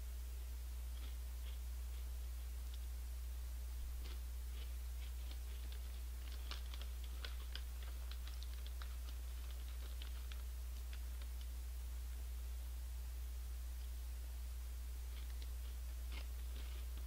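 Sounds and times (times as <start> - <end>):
low electrical hum: 0.0 - 17.0
chewing crunchy chips: 3.9 - 11.5.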